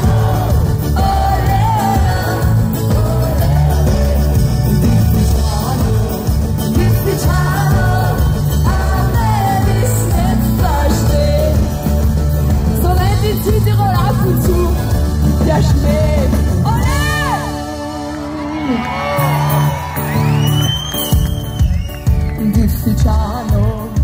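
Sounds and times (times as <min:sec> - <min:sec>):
woman singing lead vocals: 0:00.0 - 0:19.0
amplified pop band: 0:00.0 - 0:24.0.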